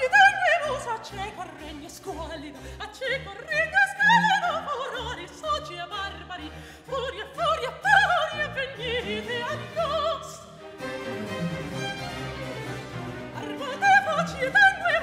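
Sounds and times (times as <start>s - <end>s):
soprano singing: 0.0s - 15.0s
small baroque band: 8.8s - 14.8s.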